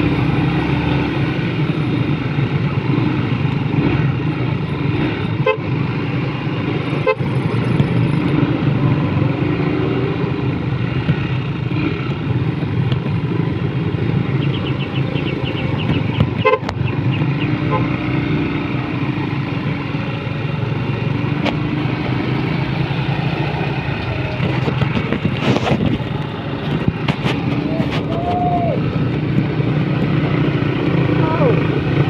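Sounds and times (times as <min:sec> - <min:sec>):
motorcycle engine running: 0:00.0 - 0:32.0
road noise: 0:00.0 - 0:32.0.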